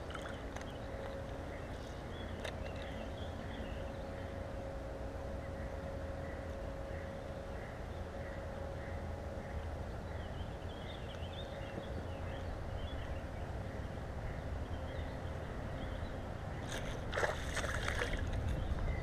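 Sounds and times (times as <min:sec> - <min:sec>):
fish splashing and thrashing: 0:00.0 - 0:00.7, 0:16.6 - 0:18.7
steady low rumble: 0:00.0 - 0:19.0.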